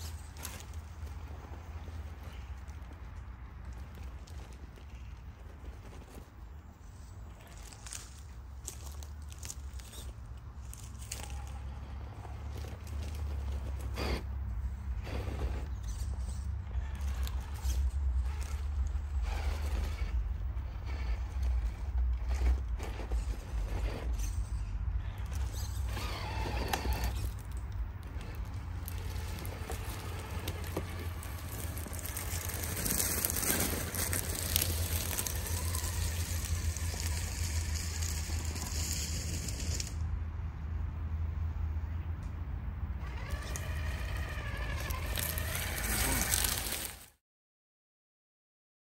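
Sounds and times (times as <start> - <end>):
tyres crackling over dry leaves: 0.0 - 40.0, 43.0 - 47.2
electric motor whining: 25.2 - 40.0, 43.0 - 47.1.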